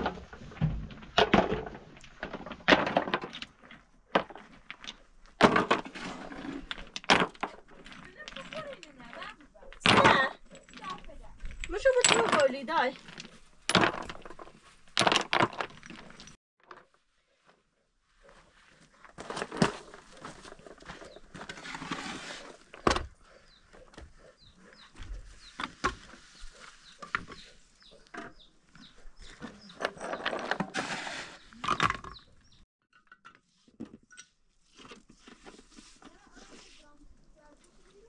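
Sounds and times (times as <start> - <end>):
stones clattering in metal basin: 0.0 - 16.4.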